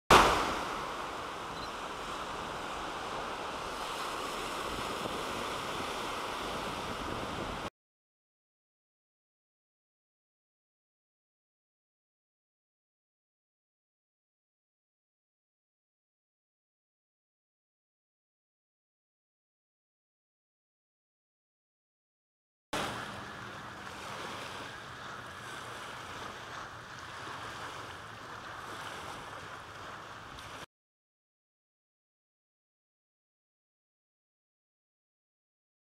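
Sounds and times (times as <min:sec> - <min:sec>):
small waves on water: 0:00.1 - 0:07.7, 0:22.8 - 0:30.7
surf breaking on beach: 0:00.1 - 0:07.7, 0:22.8 - 0:30.7.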